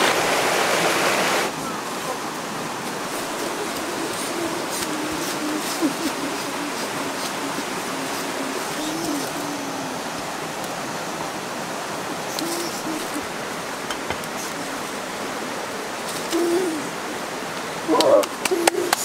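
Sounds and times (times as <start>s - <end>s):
river running over rocks: 0.0s - 19.0s
faint wavering cooing: 3.1s - 10.9s, 12.1s - 13.4s, 16.1s - 17.2s, 17.8s - 19.0s.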